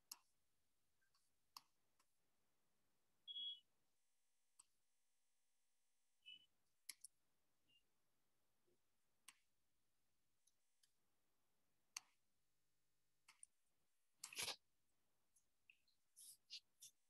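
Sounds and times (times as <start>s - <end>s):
mouse and keyboard clicks: 6.8s - 7.2s, 14.2s - 14.6s.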